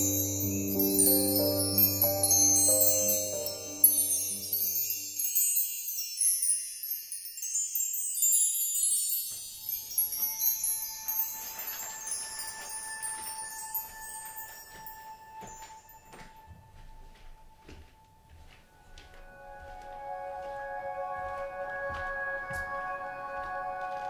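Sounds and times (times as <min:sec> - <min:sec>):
tinkling wind chimes: 0:00.0 - 0:16.8.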